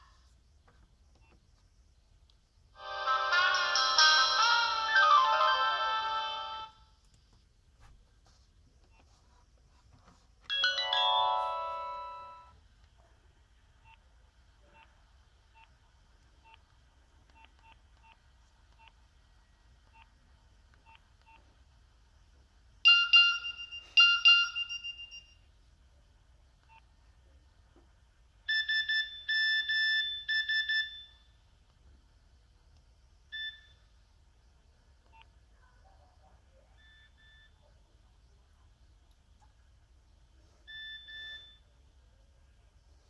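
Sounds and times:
phone chime ringing: 10.5 - 12.5
phone beeps: 22.9 - 25.4, 40.7 - 41.6.

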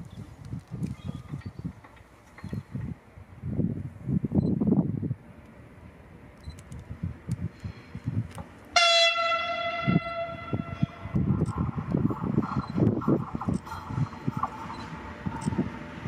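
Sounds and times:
train horn blast: 8.7 - 11.3
low uneven rumble: 9.3 - 16.0.

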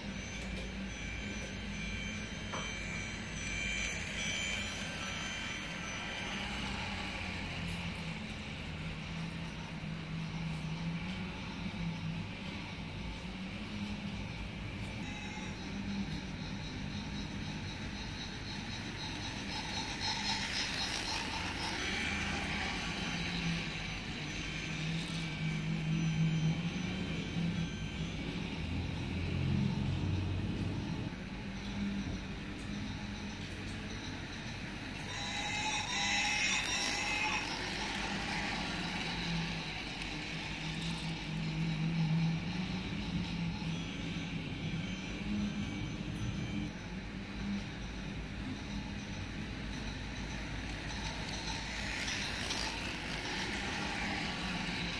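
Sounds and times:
toy train whirring and rattling: 0.0 - 54.9.

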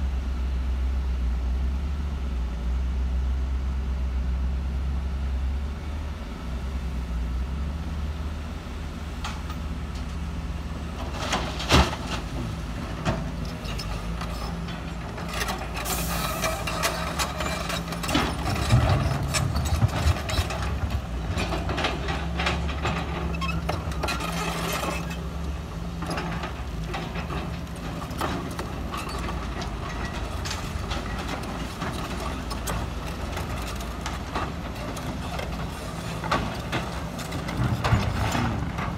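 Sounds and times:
excavator diesel engines running: 0.0 - 38.9.

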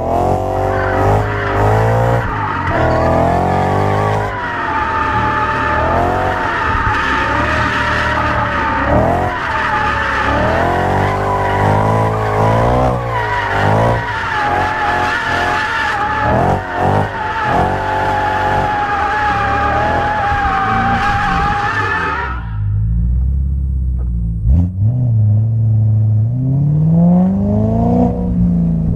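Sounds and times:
car engine revving: 0.0 - 28.9
tyre squeal: 0.2 - 22.8.

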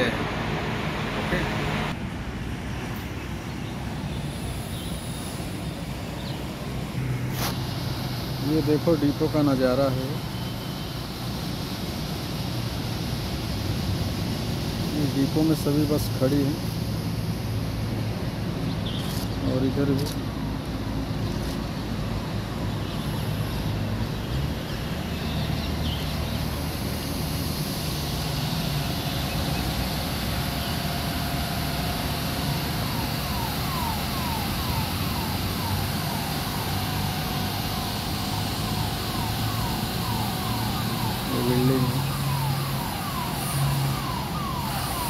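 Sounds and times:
bus engines rumbling: 0.0 - 45.0
road traffic: 0.0 - 45.0.

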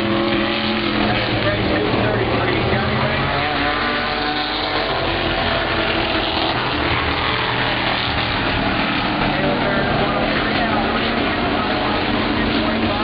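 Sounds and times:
race car engines droning: 0.0 - 13.0.

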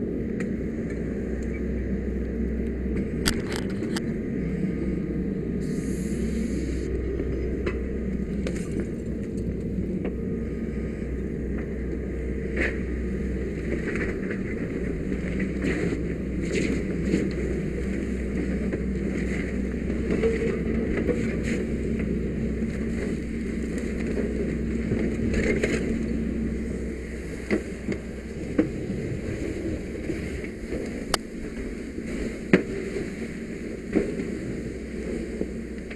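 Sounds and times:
fire hose water rushing: 5.6 - 7.1
fire cracking and popping: 13.7 - 33.0.

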